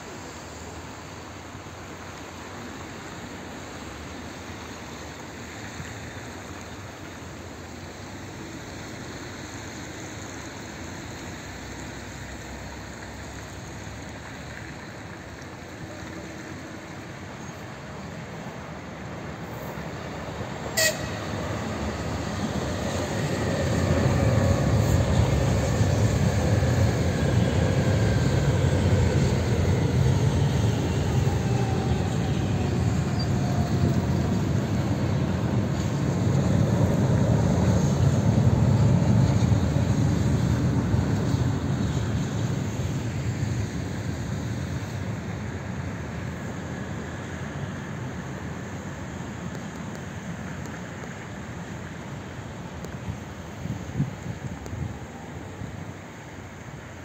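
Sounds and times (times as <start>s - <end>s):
train wheels rumbling: 12.6s - 54.7s.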